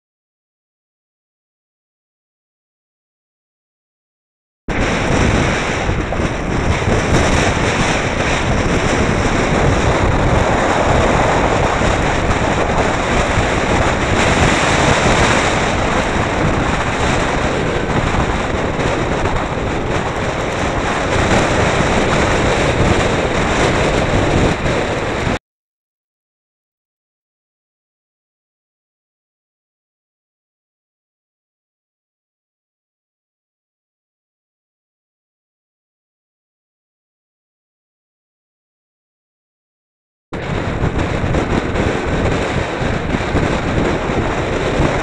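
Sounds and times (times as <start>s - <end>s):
low road and engine rumble: 4.7s - 25.4s, 40.4s - 45.0s
wind rushing over microphone: 4.7s - 25.4s, 40.4s - 45.0s.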